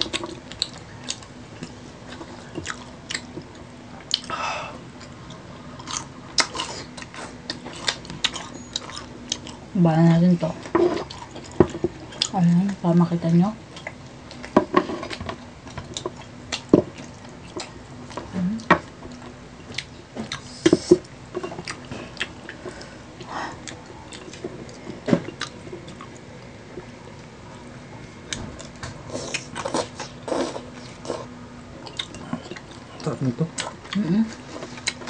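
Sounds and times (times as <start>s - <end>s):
chewing and biting fried food: 0.0s - 9.6s, 19.0s - 27.0s, 28.3s - 35.0s
faint steady hum: 0.0s - 35.0s.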